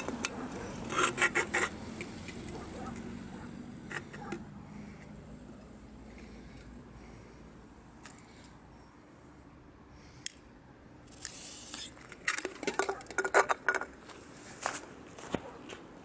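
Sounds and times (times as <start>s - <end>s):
firecracker fuse hiss: 11.1s - 11.9s
can clinking on concrete: 11.3s - 13.9s.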